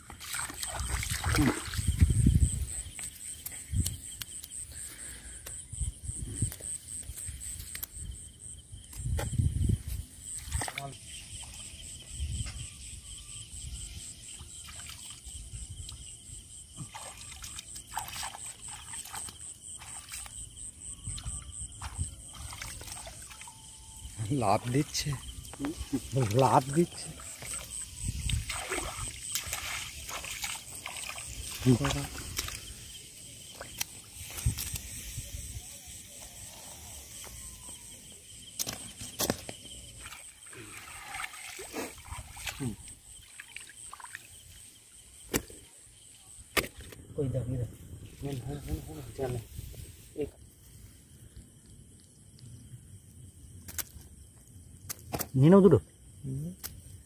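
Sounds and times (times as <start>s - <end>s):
water splashing and trickling: 0.0s - 5.1s, 9.7s - 11.8s, 14.3s - 35.1s, 38.6s - 45.3s
insects chirping: 0.0s - 57.0s.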